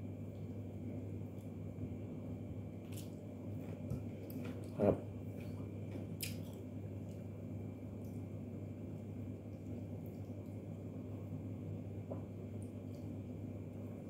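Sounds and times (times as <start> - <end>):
steady low hum: 0.0 - 14.0
chewing and smacking: 5.4 - 7.3.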